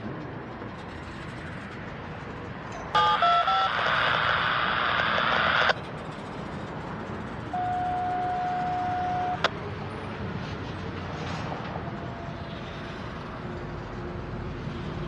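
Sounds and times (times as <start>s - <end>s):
radio static: 3.0s - 5.8s, 7.6s - 9.5s
steady electronic tone: 3.0s - 5.8s, 7.5s - 9.5s.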